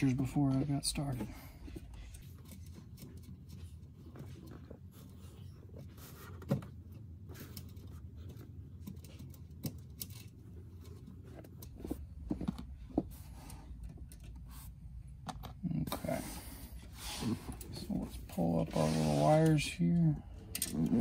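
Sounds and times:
low steady hum: 0.0s - 21.0s
metallic clicks of nuts and washers: 20.0s - 21.0s.

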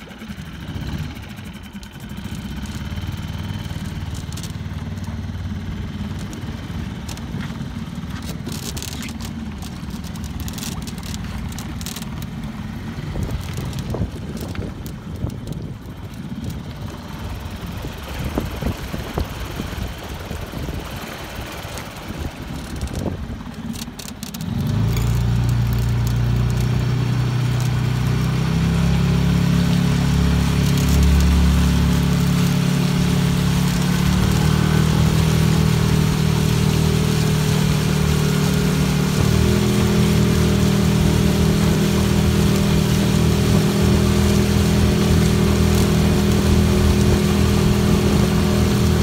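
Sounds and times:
outboard motor droning: 0.0s - 49.0s
wind buffeting microphone: 11.2s - 23.6s.

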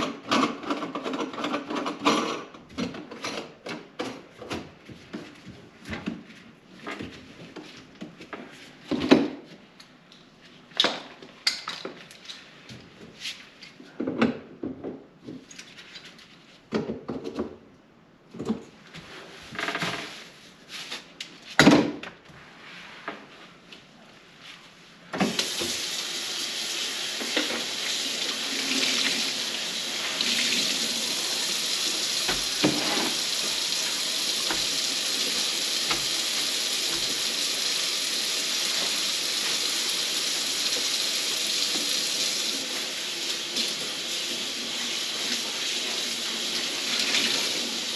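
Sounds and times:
faucet water running into sink: 25.2s - 47.9s.

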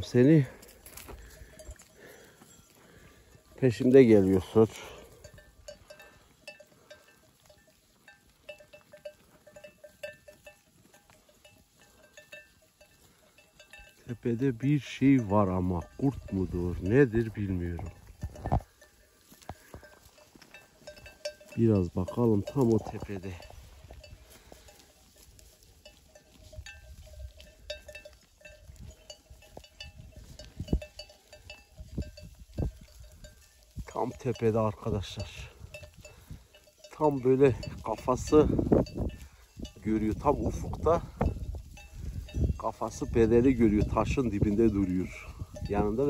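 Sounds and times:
sheep bells clinking: 0.0s - 46.0s.

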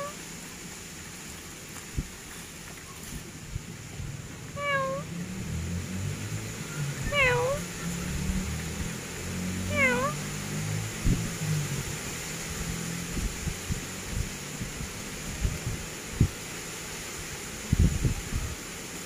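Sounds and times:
steady hiss: 0.0s - 19.0s
cat meowing: 4.6s - 5.1s, 7.0s - 7.6s, 9.7s - 10.2s.

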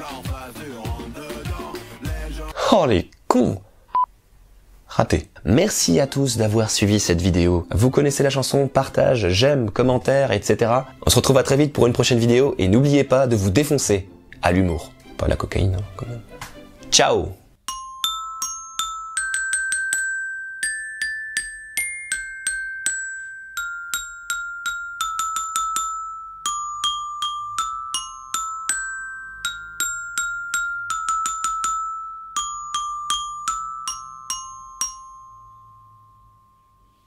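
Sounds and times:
metallophone melody: 7.0s - 9.4s, 17.6s - 37.0s.

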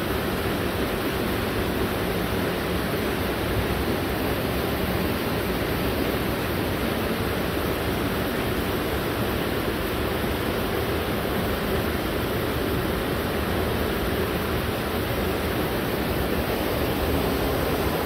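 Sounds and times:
waterfall rushing: 14.2s - 18.0s.

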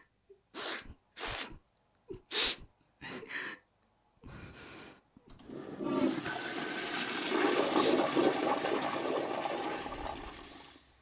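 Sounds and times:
toilet flushing: 5.4s - 10.9s.

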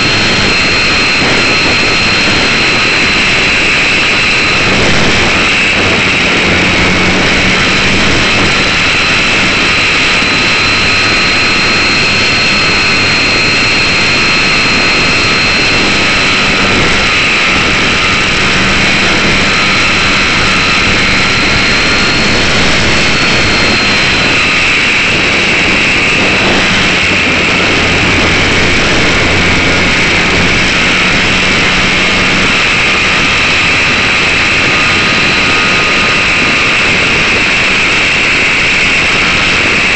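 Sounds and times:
electric motor and propeller whine: 0.0s - 39.9s
rushing air noise: 0.0s - 39.9s.

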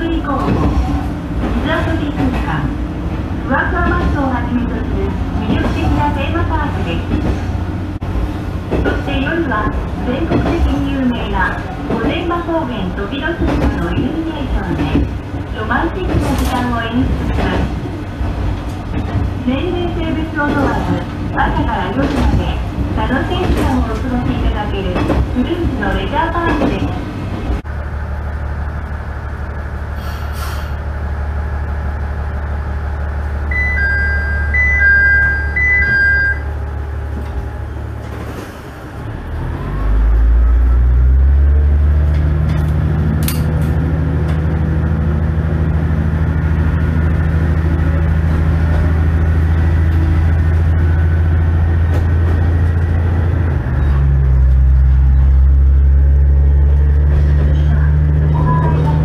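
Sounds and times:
diesel railcar engine: 0.0s - 59.0s
electronic chime: 33.5s - 36.5s.

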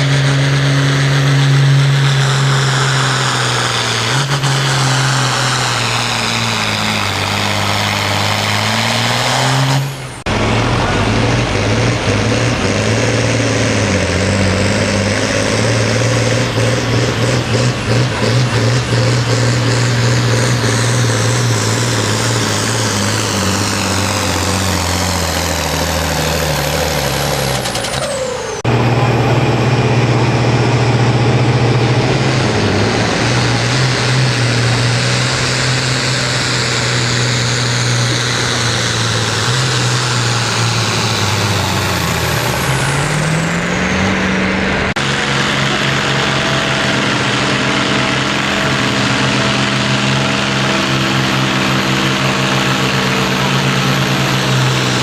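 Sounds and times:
diesel tractor engine at full throttle: 0.0s - 55.0s.

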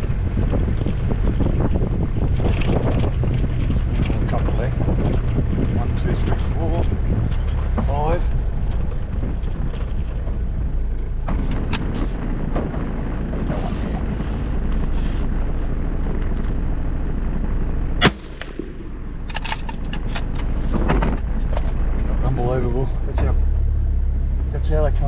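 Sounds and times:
car engine running: 0.0s - 25.0s
rifle shot: 18.0s - 19.4s.

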